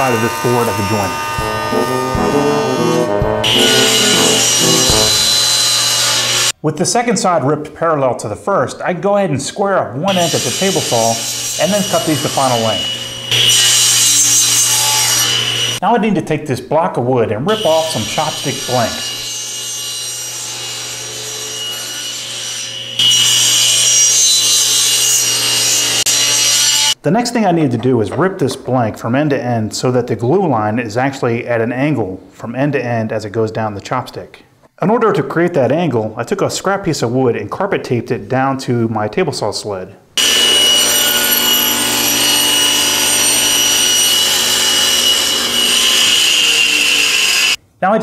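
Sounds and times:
table saw cutting wood: 0:00.0 - 0:06.5, 0:10.1 - 0:15.8, 0:17.5 - 0:27.0, 0:40.2 - 0:47.6.

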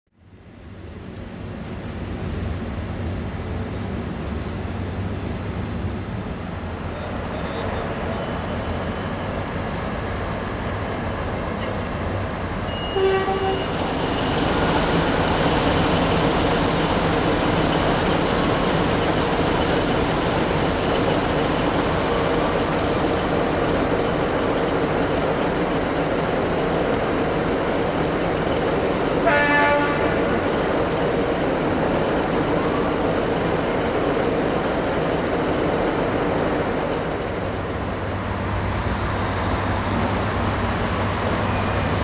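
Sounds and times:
diesel engine and running noise: 0:00.2 - 0:42.0
train horn toot: 0:12.7 - 0:13.9, 0:29.2 - 0:30.3.

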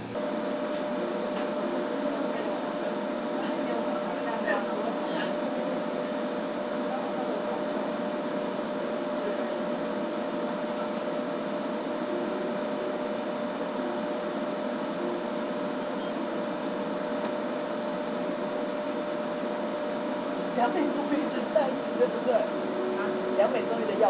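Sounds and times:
machine hum with steady tone: 0:00.0 - 0:24.0.

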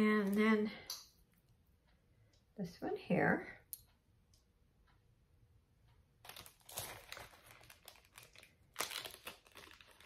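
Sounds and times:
packaging crinkling: 0:06.2 - 0:10.0.

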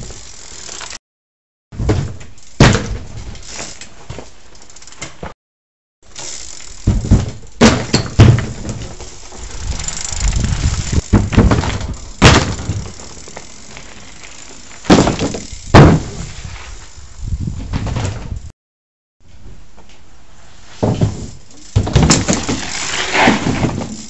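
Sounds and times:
bike tyres rumbling on boards: 0:00.0 - 0:01.0, 0:01.8 - 0:05.3, 0:06.1 - 0:18.5, 0:20.4 - 0:24.0
wheels knocking on wood: 0:06.2 - 0:16.2, 0:20.8 - 0:24.0.

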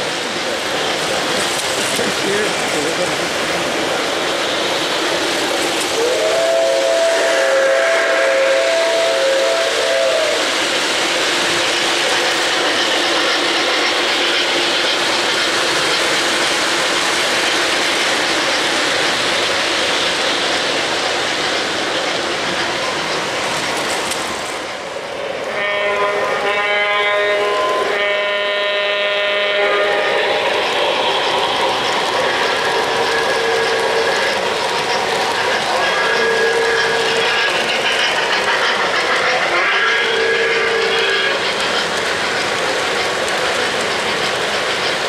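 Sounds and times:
model train rumble and clatter: 0:00.0 - 0:45.0
train whistle chord: 0:06.0 - 0:10.4, 0:25.5 - 0:30.5.

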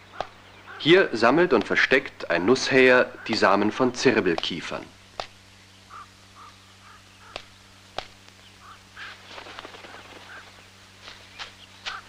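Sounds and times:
bird call notes: 0:00.0 - 0:03.6, 0:05.4 - 0:12.0
steady low hum: 0:00.0 - 0:12.0
sharp clicks: 0:05.2 - 0:05.4, 0:07.2 - 0:08.4.

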